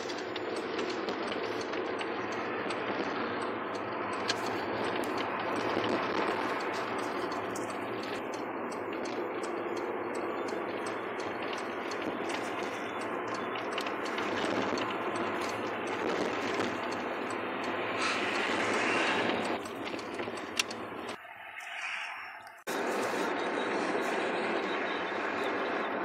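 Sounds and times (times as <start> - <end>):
car road and tyre noise: 0.0 - 26.0.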